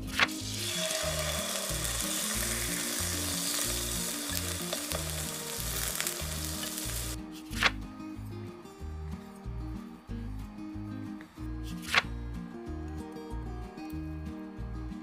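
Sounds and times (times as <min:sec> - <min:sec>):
steak sizzling in a frying pan: 0:00.4 - 0:07.2.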